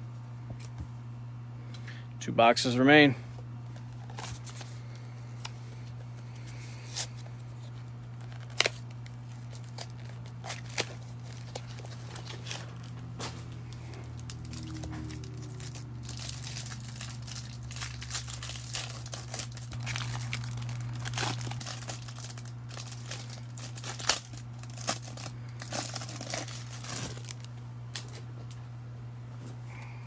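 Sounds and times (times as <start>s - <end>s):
low hum: 0.0s - 30.0s
plastic wrap crinkling: 6.5s - 28.3s.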